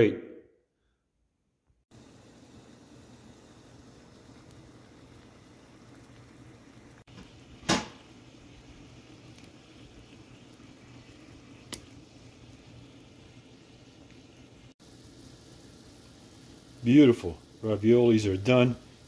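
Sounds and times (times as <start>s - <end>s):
water boiling and bubbling: 1.9s - 19.0s
faint click: 11.7s - 11.9s.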